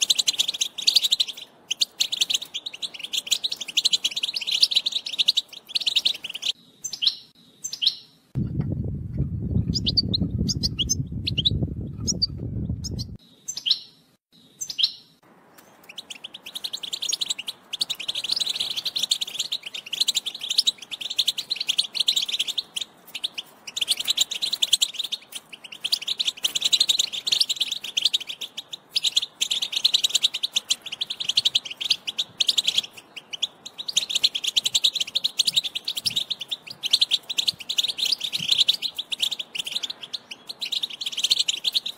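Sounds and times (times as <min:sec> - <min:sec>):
goldfinch singing: 0:00.0 - 0:08.1, 0:09.5 - 0:41.9
low rumble: 0:08.4 - 0:13.2.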